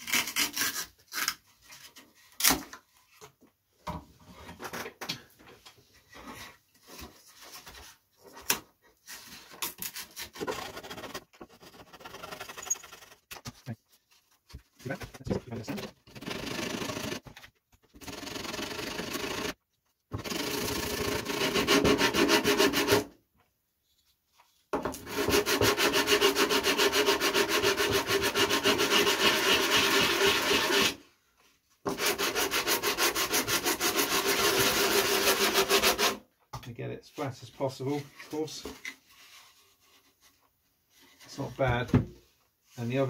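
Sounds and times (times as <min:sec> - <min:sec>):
sanding block rasping on wood: 0:21.2 - 0:23.0, 0:25.1 - 0:31.0, 0:31.9 - 0:36.2.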